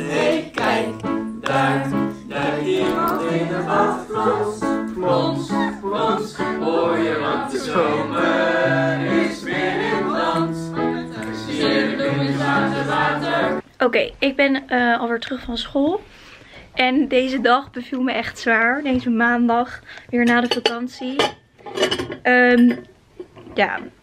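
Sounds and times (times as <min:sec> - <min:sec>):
choir singing held notes: 0:00.0 - 0:13.6.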